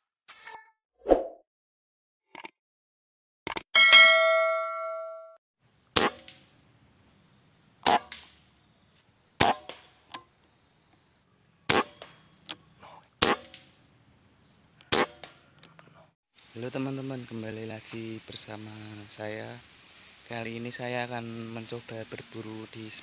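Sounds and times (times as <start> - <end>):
bell-like ding: 3.8 - 5.4.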